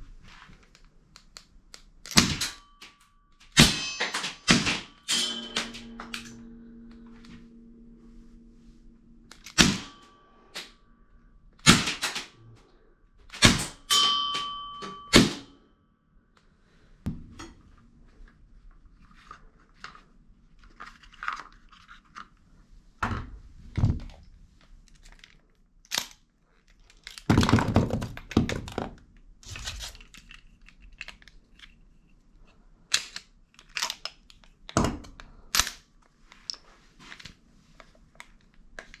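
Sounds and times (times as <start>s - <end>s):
short metallic ring: 2.6s - 11.2s, 13.9s - 15.6s
bb gun shots: 9.4s - 10.0s, 11.6s - 12.3s.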